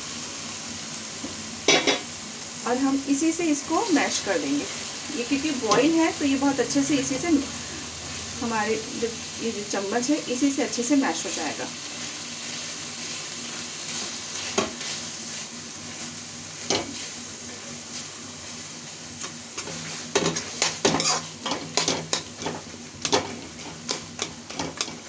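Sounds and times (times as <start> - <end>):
vegetables sizzling in oil: 0.0 - 25.0
spoon scraping a pan: 19.6 - 25.0.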